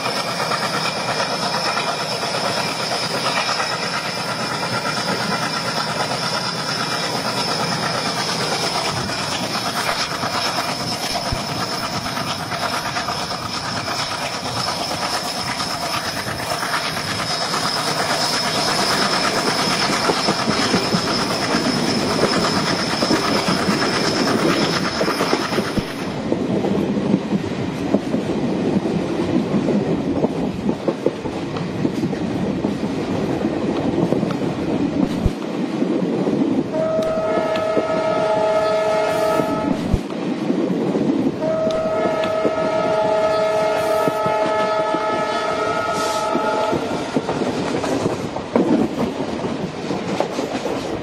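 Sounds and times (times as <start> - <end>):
train wheels rumbling and clicking: 0.0 - 51.0
locomotive horn blasts: 36.8 - 39.8, 41.4 - 47.0.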